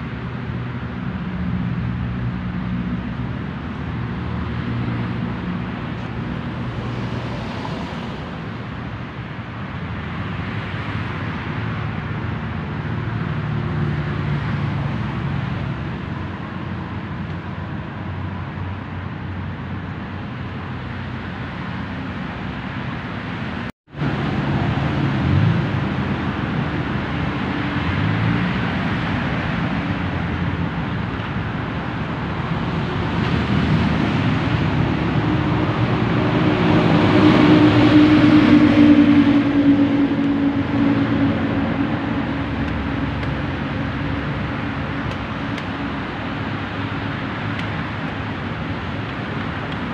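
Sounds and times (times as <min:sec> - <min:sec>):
road traffic drone: 0:00.0 - 0:49.9.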